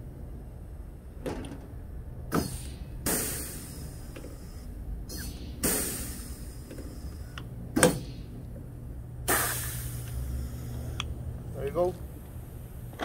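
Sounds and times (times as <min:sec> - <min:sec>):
air hiss from rivet gun: 0:02.3 - 0:08.3, 0:09.3 - 0:10.8.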